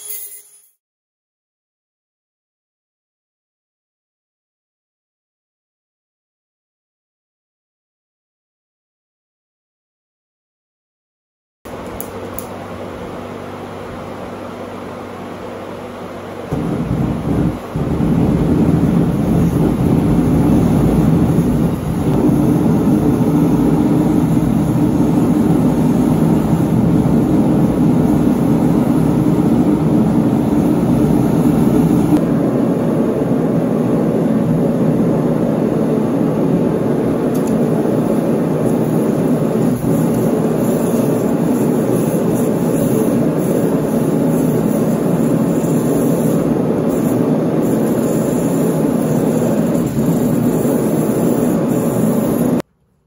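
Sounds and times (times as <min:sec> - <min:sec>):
forge burner rushing: 0:16.5 - 0:52.6.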